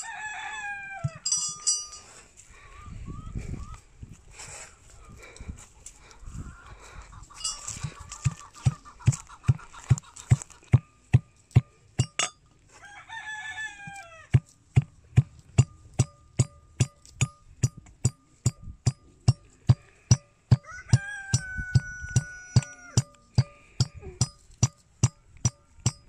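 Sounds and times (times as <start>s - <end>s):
rooster crowing: 0.0s - 1.3s, 12.7s - 14.3s, 20.6s - 23.2s
brass mortar and pestle pounding: 7.8s - 12.4s, 14.3s - 26.0s.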